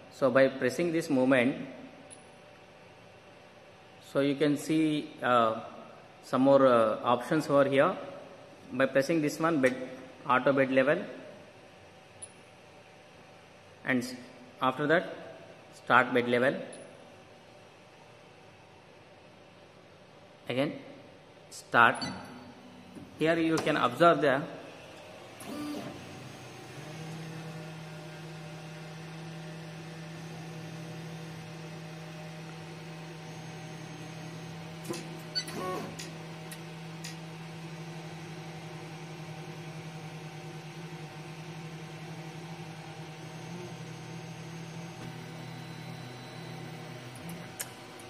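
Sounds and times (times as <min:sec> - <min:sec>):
stepper motors humming: 0:22.7 - 0:48.0.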